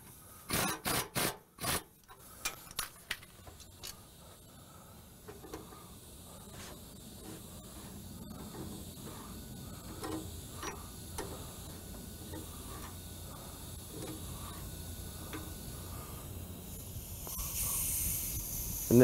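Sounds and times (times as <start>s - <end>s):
hiss: 0.0s - 19.0s
wrench clicking and ticking: 9.9s - 11.5s, 15.3s - 15.5s.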